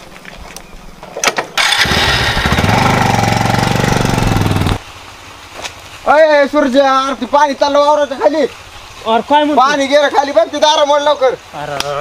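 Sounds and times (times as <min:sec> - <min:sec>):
engine starting and running: 0:01.2 - 0:04.8.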